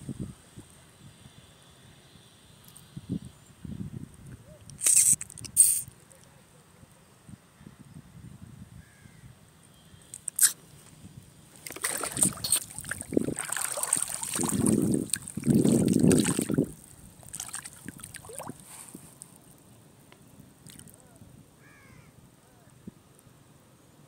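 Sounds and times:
water sloshing and splashing: 11.6 - 19.2, 20.6 - 21.0.

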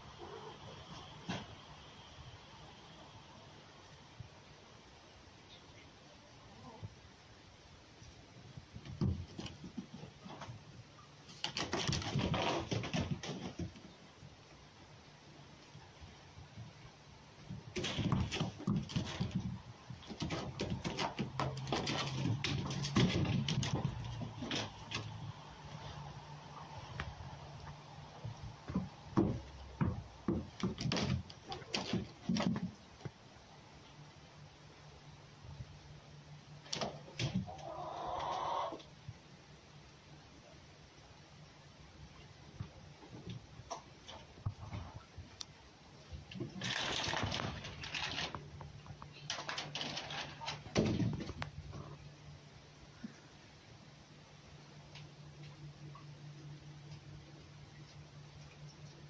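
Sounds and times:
knocks and thumps: 8.7 - 10.6, 11.4 - 13.9, 17.4 - 25.2, 28.2 - 32.8, 49.4 - 51.7
fox scuffling on dirt floor: 17.4 - 33.2
knocks: 28.2 - 32.7.

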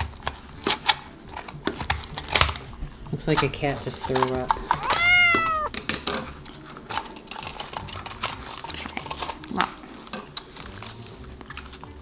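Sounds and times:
falling vocal exclamation: 4.8 - 5.7.

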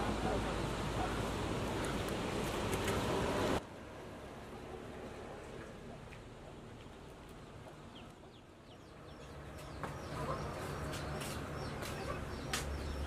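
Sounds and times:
chicks peeping: 7.6 - 13.0.

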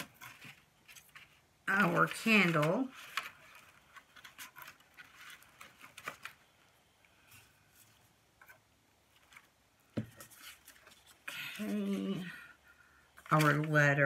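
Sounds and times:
paper and cardboard rustling: 0.0 - 12.5, 13.1 - 14.0.

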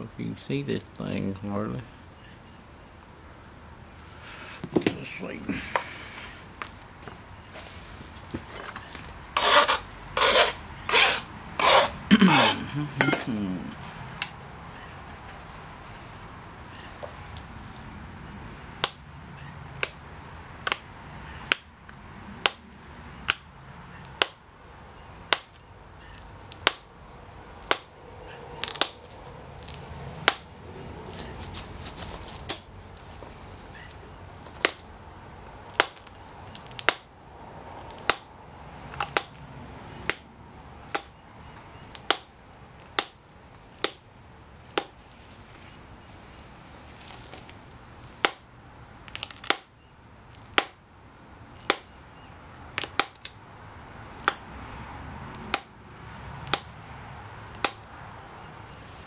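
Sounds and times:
gloves and leather rustling: 5.5 - 14.4, 15.0 - 18.0, 30.8 - 34.9, 44.6 - 48.2.

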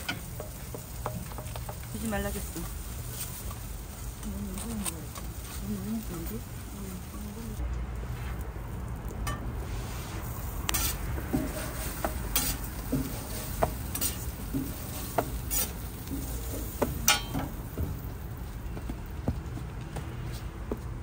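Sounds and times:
faint sizzle: 0.0 - 18.6
metal spatula clinking and scraping: 10.7 - 17.6.

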